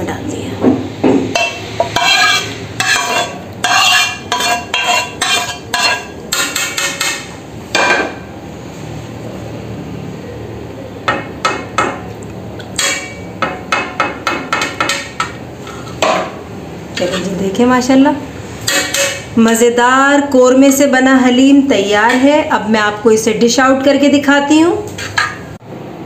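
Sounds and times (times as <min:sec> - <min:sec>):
onions scraped into a pot: 0:01.4 - 0:07.1.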